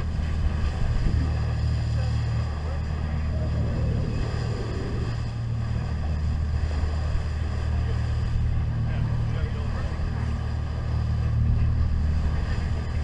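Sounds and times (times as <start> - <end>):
boat engine drone: 0.0 - 13.0
wind: 0.0 - 13.0
water hissing: 3.2 - 5.8.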